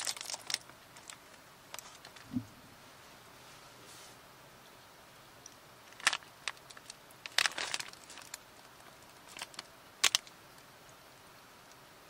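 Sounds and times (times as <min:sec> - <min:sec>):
plastic bag crinkling: 0:00.0 - 0:02.4, 0:05.9 - 0:10.3.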